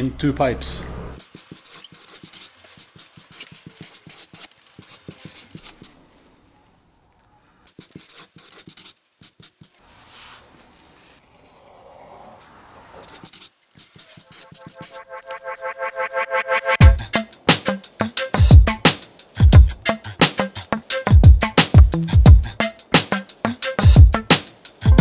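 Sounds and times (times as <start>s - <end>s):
pen scratching on paper: 7.7s - 9.8s, 11.5s - 15.5s.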